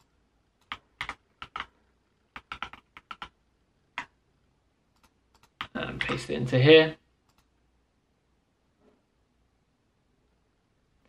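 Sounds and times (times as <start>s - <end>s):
mouse and keyboard clicks: 5.0s - 6.2s, 7.3s - 7.5s.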